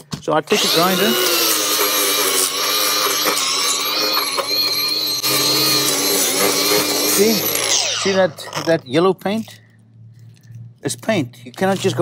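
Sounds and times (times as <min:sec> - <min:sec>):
angle grinder motor whine: 0:00.5 - 0:08.9.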